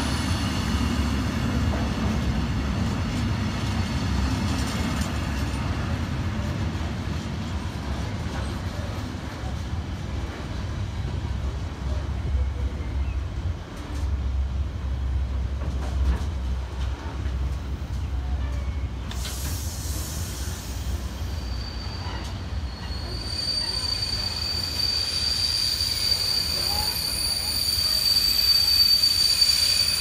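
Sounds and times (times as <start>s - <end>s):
freight train wagons rumbling: 0.0s - 30.0s
wagons squealing: 21.3s - 30.0s.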